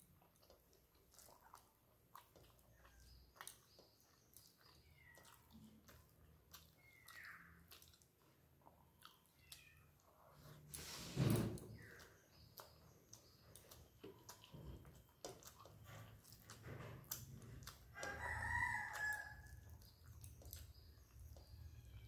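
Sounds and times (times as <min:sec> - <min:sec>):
eating by hand smacks: 0:00.0 - 0:22.0
rooster crowing: 0:18.0 - 0:19.5.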